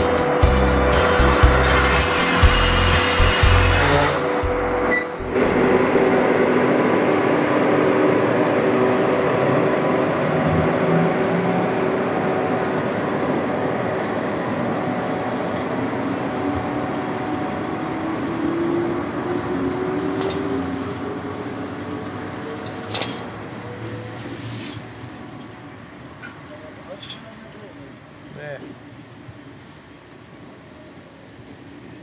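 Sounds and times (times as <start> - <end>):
rising tone: 0.0 - 21.2
train wheels rumbling on rails: 0.0 - 27.7
electric locomotive hum: 0.0 - 32.0.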